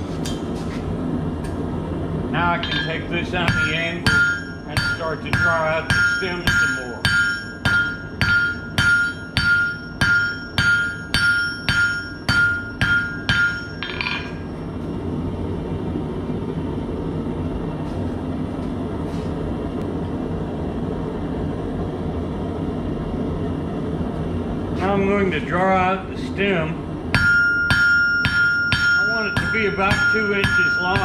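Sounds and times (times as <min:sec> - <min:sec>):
hammer striking steel on anvil: 0:02.5 - 0:14.6, 0:27.2 - 0:31.0.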